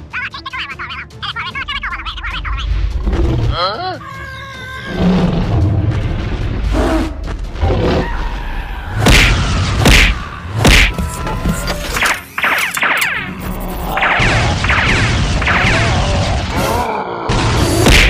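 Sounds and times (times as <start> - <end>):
background music: 0.0 - 18.0
cartoon fight sound effects: 9.0 - 11.1, 13.9 - 18.0.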